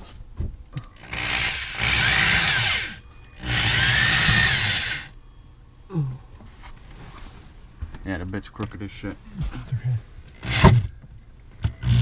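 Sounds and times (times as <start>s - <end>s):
electric drill cutting with hole saw: 1.0s - 5.1s, 10.4s - 10.8s, 11.8s - 12.0s.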